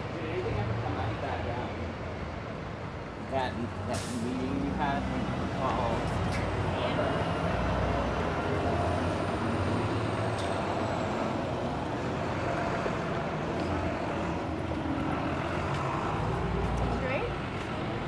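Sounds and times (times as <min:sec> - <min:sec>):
bus engine: 0:00.0 - 0:18.0
traffic engine hum: 0:00.0 - 0:18.0.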